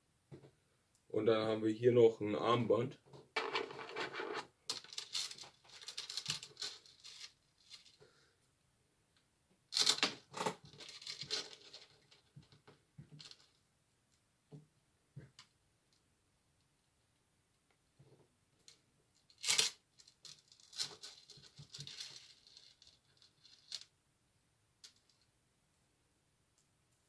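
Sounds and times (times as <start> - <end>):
packaging rustling and tearing: 3.4 - 8.0.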